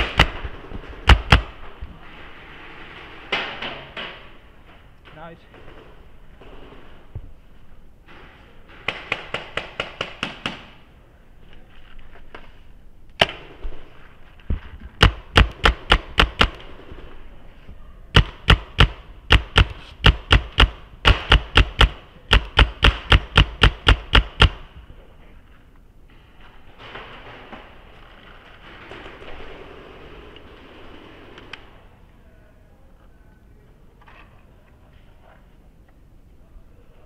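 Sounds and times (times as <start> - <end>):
paintball marker shots: 0.0 - 1.6, 15.0 - 16.7, 18.2 - 24.7.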